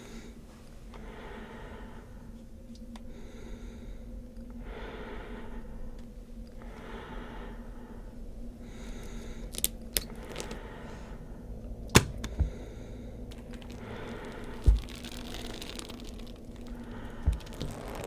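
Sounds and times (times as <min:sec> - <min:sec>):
heavy breathing: 0:00.0 - 0:02.4, 0:03.1 - 0:06.0, 0:06.6 - 0:09.6, 0:10.2 - 0:11.6, 0:12.2 - 0:18.0
low steady hum: 0:00.0 - 0:18.0
sharp clicks and snaps: 0:09.5 - 0:10.6.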